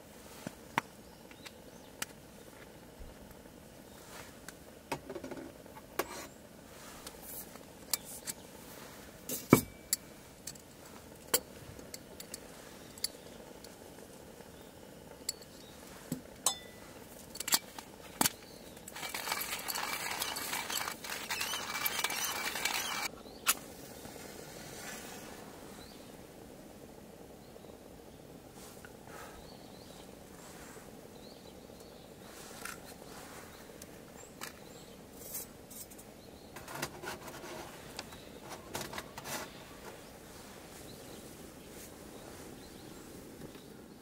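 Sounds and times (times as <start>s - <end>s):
rustling hiss: 0.0s - 44.0s
small hard objects clicking: 17.3s - 23.1s.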